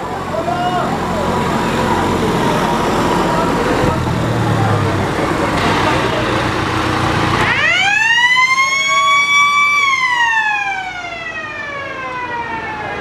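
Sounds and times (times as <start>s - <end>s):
siren winding up and down: 7.3s - 13.0s.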